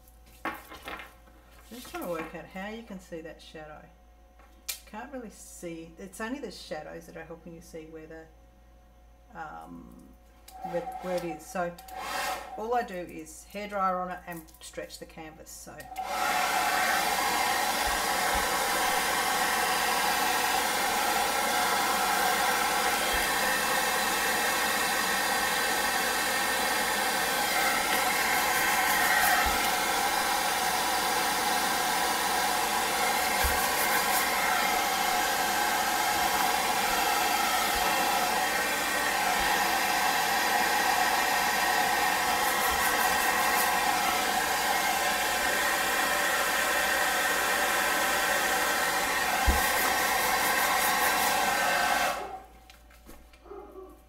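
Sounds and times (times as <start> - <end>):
hairdryer blowing air: 10.5 - 13.0, 15.8 - 52.5.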